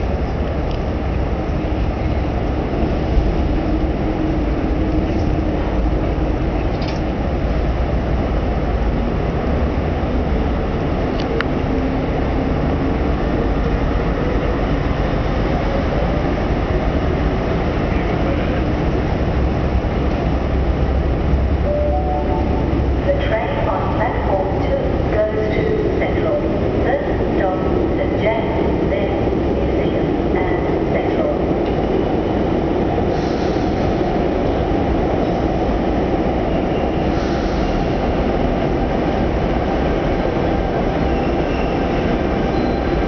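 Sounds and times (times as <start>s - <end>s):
low rumble of engines: 0.0s - 43.0s.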